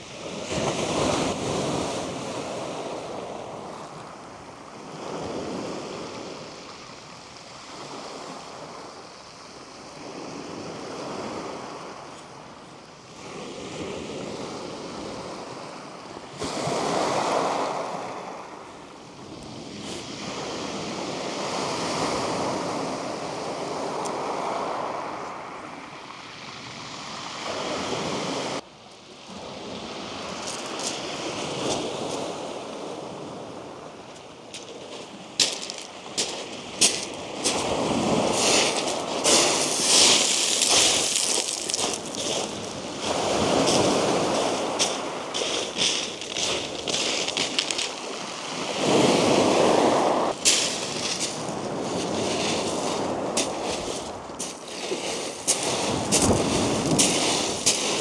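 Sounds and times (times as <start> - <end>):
waves breaking on shingle: 34.5 - 49.3, 49.9 - 58.0
water washing over stones: 38.3 - 48.3, 50.3 - 52.8, 53.4 - 58.0.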